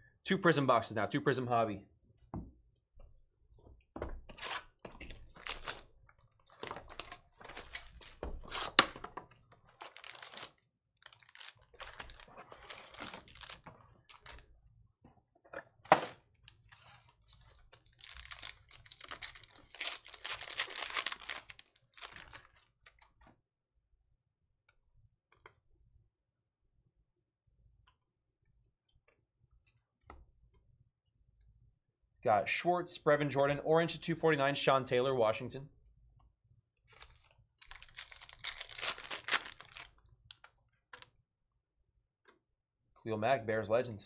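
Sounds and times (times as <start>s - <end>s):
foil packs tearing and crinkling: 9.8s - 14.4s, 17.0s - 22.6s, 37.0s - 40.4s.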